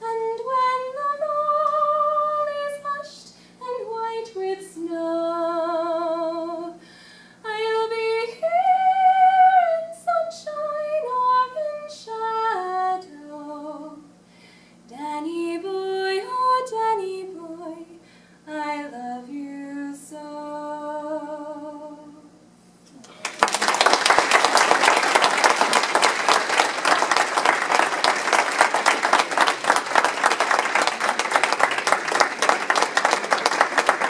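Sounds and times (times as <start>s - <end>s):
woman singing unaccompanied: 0.0s - 6.8s, 7.4s - 14.1s, 14.9s - 22.3s.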